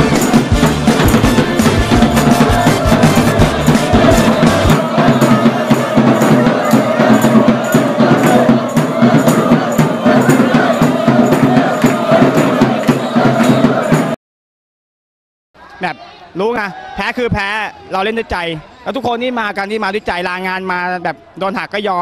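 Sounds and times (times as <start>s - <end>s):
fast percussion beat: 0.0s - 14.2s
voices singing: 0.0s - 14.2s.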